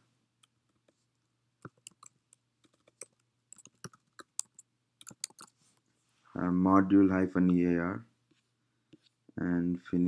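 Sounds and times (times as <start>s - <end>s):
computer keyboard typing: 1.6s - 5.5s.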